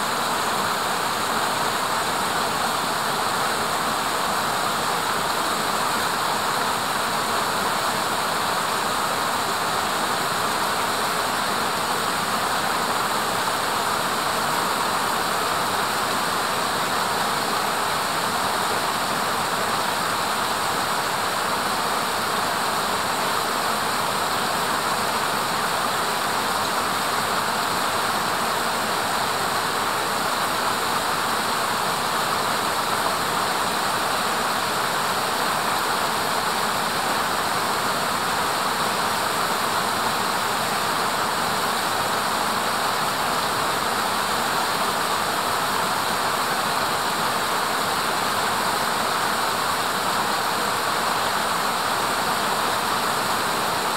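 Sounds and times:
stream water rushing: 0.0 - 53.9.

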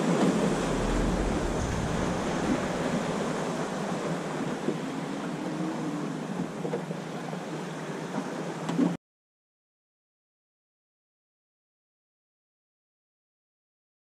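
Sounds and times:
wind noise on microphone: 0.0 - 5.6
water lapping around boat: 0.0 - 9.0.

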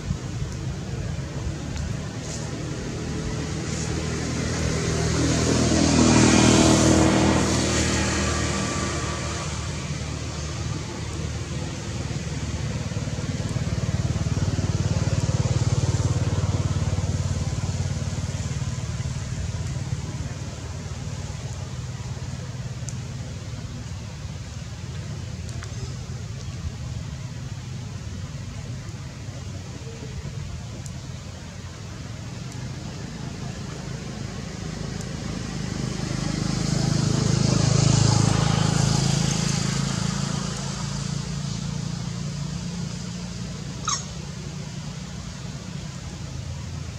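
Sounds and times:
vehicle engine humming: 0.0 - 46.9.

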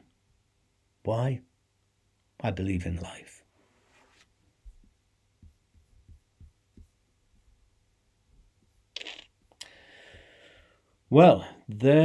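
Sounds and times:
faint low thumps: 4.6 - 7.7.

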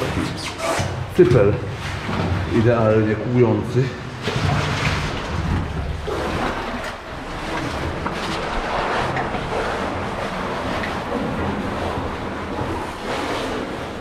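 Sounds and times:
water rushing and splashing: 0.0 - 14.0.

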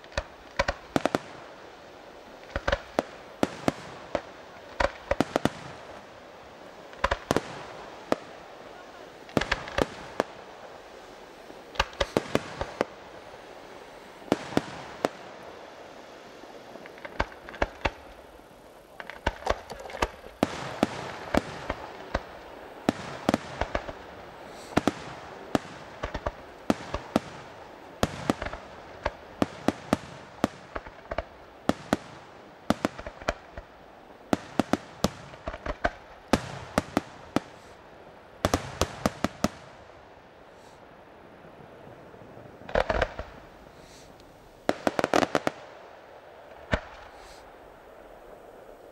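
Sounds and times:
firework shells bursting: 11.6 - 13.0, 16.7 - 37.8, 42.7 - 45.7.

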